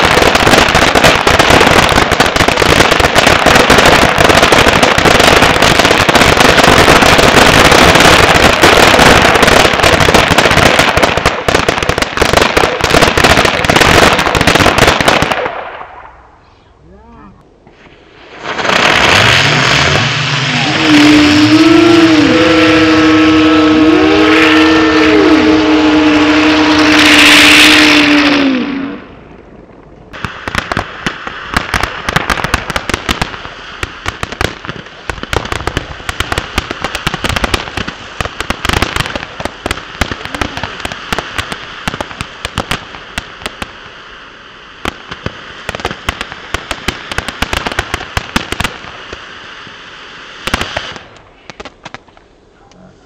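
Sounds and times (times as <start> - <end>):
fountain firework crackling: 0.0 - 16.4, 17.6 - 53.0
fireworks whistling: 0.0 - 16.8, 17.6 - 52.3
loud hiss: 17.6 - 29.4, 30.1 - 52.1.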